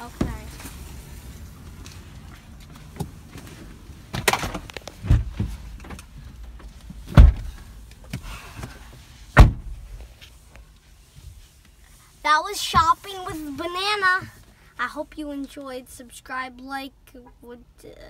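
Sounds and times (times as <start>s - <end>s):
car doors slamming: 4.1s - 6.0s, 7.0s - 7.6s, 9.4s - 10.0s
knocks and bumps: 4.1s - 8.2s.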